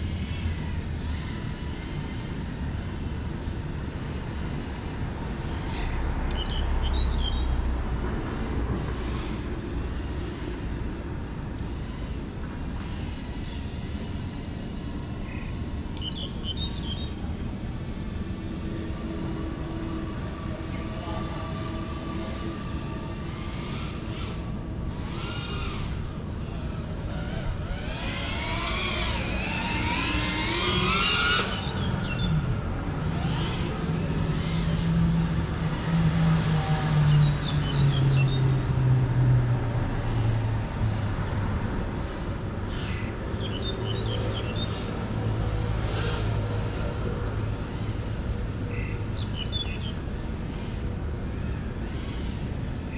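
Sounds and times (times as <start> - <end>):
outdoor background noise: 0.0 - 52.9
quadcopter motors whining: 9.0 - 38.8.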